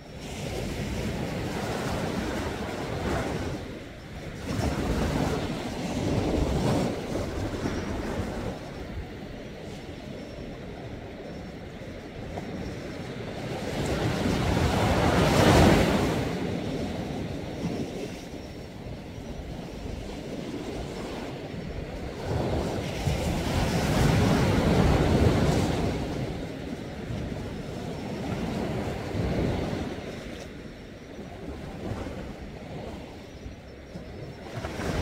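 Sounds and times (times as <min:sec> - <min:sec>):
sea surf washing onto shore: 0:12.5 - 0:17.9, 0:20.3 - 0:30.7.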